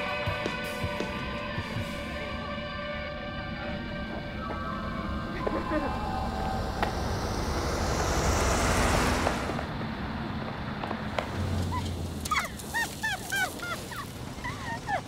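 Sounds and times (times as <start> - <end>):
broad rushing noise: 1.6 - 13.0
girls giggling: 11.7 - 15.0.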